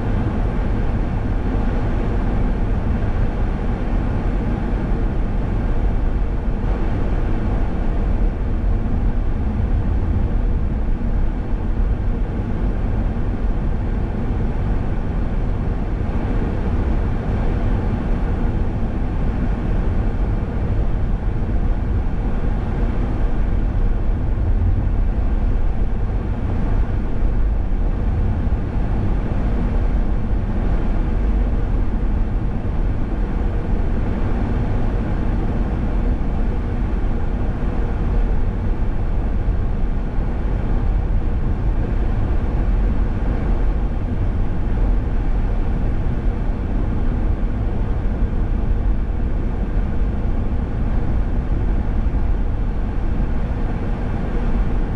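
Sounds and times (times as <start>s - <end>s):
car driving on highway: 19.2s - 37.0s.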